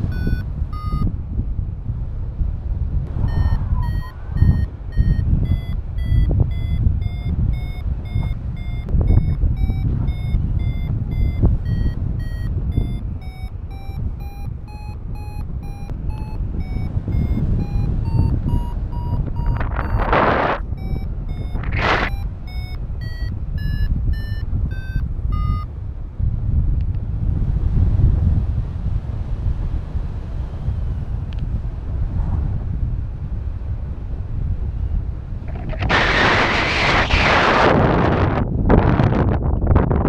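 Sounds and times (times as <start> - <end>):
variometer short beeps: 0.0 - 1.1, 3.2 - 25.7
wind rumble on microphone: 0.0 - 40.0.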